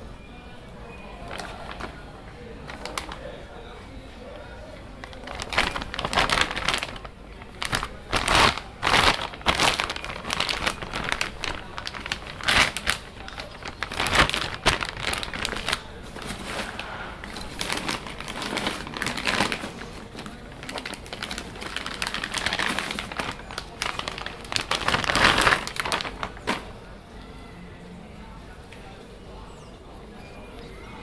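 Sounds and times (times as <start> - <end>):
plastic bags crinkling: 1.0 - 3.7, 4.8 - 26.9.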